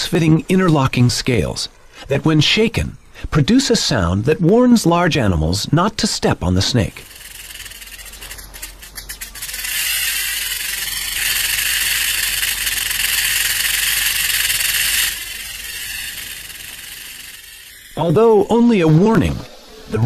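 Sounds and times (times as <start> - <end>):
rattlesnake rattle buzzing: 6.8 - 18.5.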